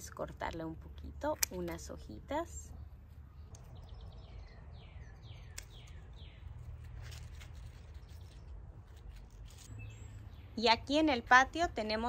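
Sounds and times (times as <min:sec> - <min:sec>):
scissors snipping leaves: 0:01.0 - 0:02.2, 0:05.4 - 0:09.8.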